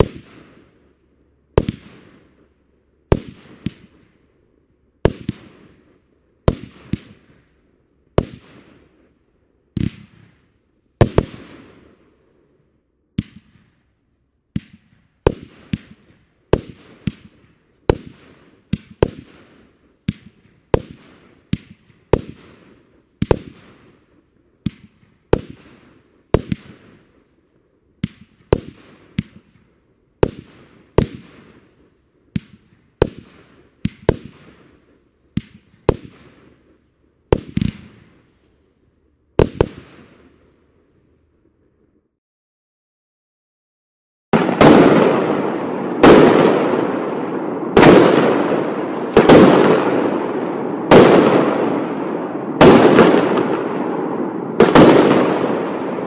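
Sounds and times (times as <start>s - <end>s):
firework bangs: 39.4s - 40.4s, 44.4s - 56.0s.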